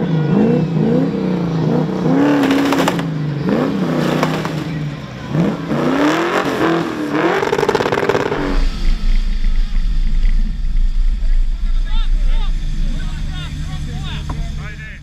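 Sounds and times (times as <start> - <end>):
car engine revving hard: 0.0 - 14.8.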